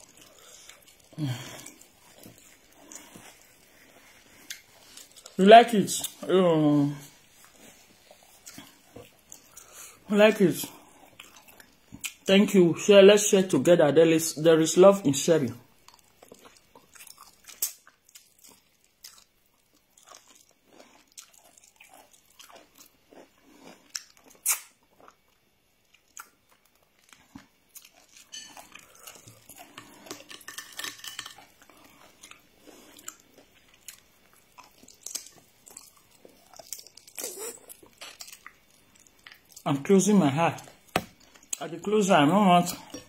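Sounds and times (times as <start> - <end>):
chewing chicken on the bone: 15.8 - 30.5, 31.3 - 39.6
wet mouth sounds: 23.9 - 25.2, 34.6 - 39.6.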